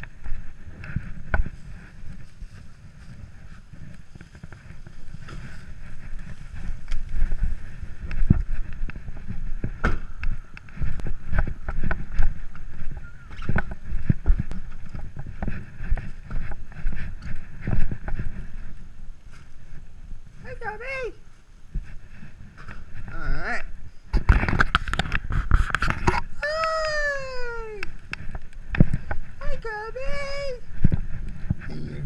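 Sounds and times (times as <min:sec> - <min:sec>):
knocks and rustles: 0:00.0 - 0:19.9, 0:24.1 - 0:26.9
wind buffeting microphone: 0:00.0 - 0:32.0
camera handling rumble: 0:24.1 - 0:26.4.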